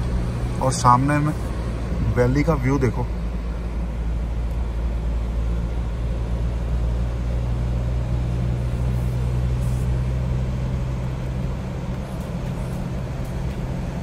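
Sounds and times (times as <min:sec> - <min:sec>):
vehicle engine and road noise: 0:00.0 - 0:14.0.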